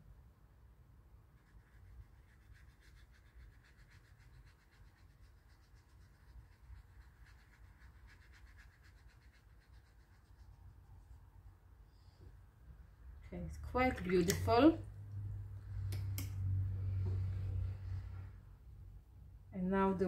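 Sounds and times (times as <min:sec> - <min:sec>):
paintbrush scrubbing on paper: 0:01.2 - 0:11.6.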